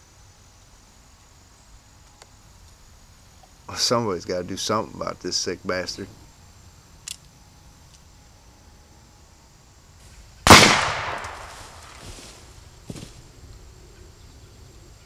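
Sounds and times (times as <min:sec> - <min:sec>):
handgun shot with echo: 0:10.5 - 0:11.8.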